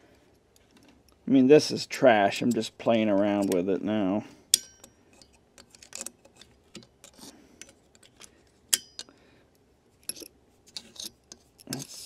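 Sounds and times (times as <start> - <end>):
screwdriver clicking and scraping: 4.6 - 9.1, 10.0 - 12.0.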